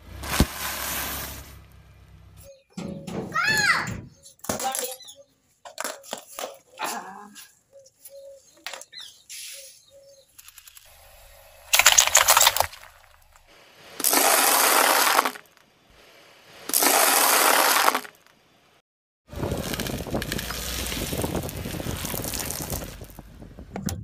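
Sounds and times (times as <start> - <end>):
steady rumbling: 10.9 - 13.8, 19.3 - 24.0.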